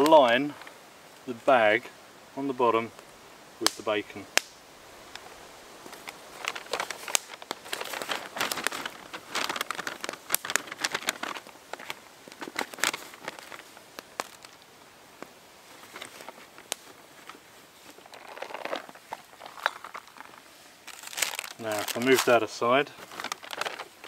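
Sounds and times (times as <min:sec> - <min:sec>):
paper bag crinkling: 0:05.9 - 0:14.6, 0:15.7 - 0:24.0.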